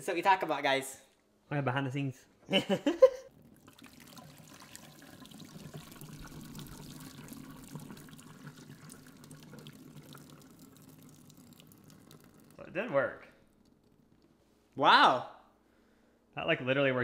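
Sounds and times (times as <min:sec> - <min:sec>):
water pouring into steel sink: 0:03.2 - 0:14.4.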